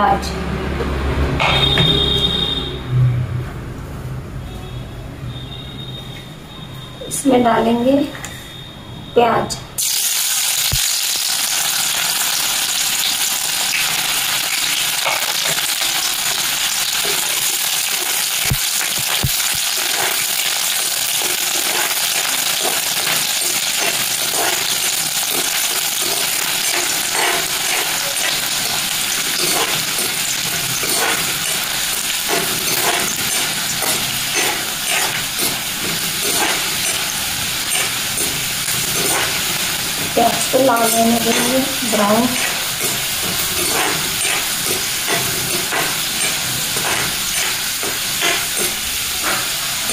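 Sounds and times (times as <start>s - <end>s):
onions sizzling in oil: 9.8s - 49.9s
metal spoon scraping pan: 19.8s - 49.9s.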